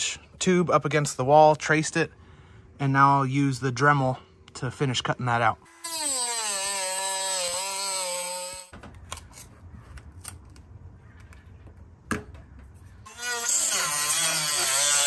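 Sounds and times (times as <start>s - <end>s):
rotary tool cutting metal: 5.7s - 8.7s, 13.0s - 15.0s.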